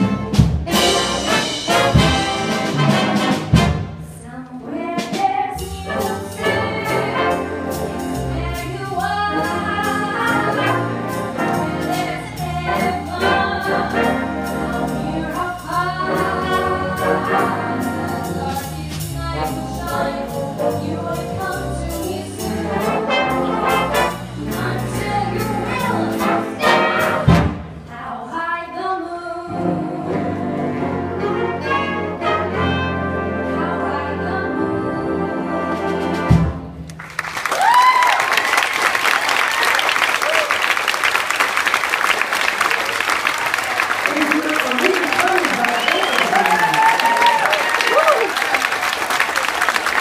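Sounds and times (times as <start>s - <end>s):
instrumental accompaniment: 0.0s - 27.9s, 29.4s - 36.9s
woman singing: 4.1s - 7.4s, 8.2s - 23.0s, 24.4s - 26.8s, 27.9s - 30.6s, 33.4s - 35.7s
applause: 36.9s - 50.0s
rising whistle: 45.6s - 48.4s.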